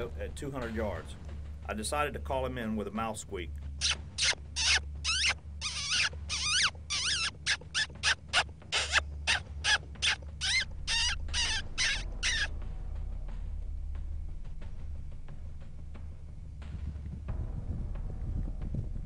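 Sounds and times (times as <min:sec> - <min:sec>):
high mouth squeaks: 0:03.8 - 0:12.5.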